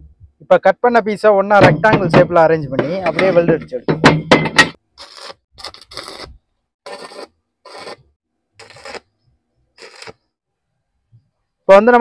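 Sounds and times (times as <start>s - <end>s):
arc welding crackling: 8.6s - 9.1s, 9.8s - 10.3s.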